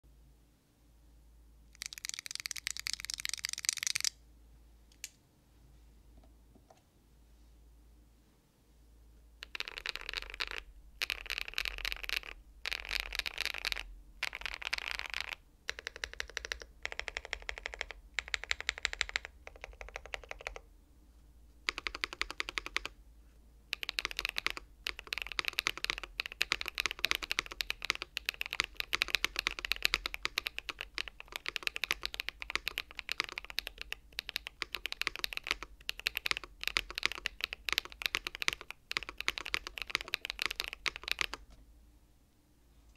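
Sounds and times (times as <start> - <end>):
mechanical keyboard typing: 1.8 - 4.2, 9.4 - 20.6, 21.7 - 23.0, 23.7 - 41.4.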